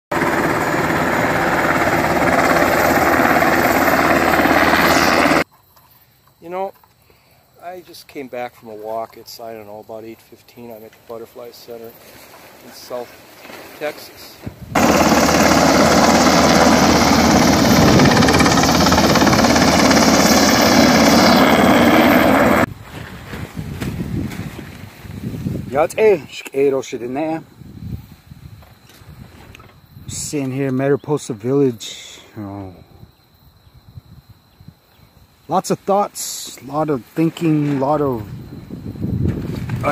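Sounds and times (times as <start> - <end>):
helicopter rotor chopping: 0.1 - 5.4, 14.7 - 22.7.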